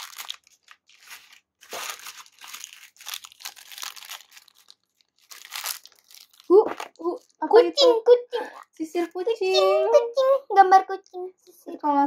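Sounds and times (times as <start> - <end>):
plastic packaging crinkling: 0.0 - 7.4.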